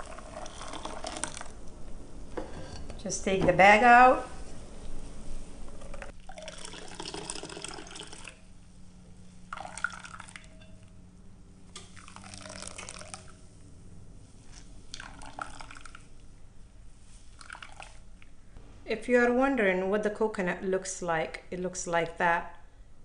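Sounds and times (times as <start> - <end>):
liquid streaming and dripping: 11.8 - 13.4, 14.9 - 16.3.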